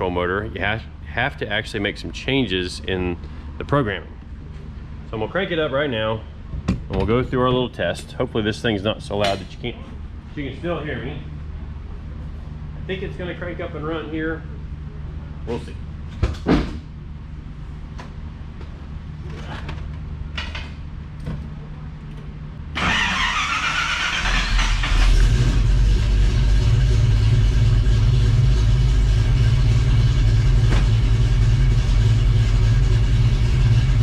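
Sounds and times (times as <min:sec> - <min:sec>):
low hum: 0:16.8 - 0:34.0
starter motor cranking whine: 0:22.8 - 0:27.9
car engine idling loudly: 0:24.2 - 0:34.0.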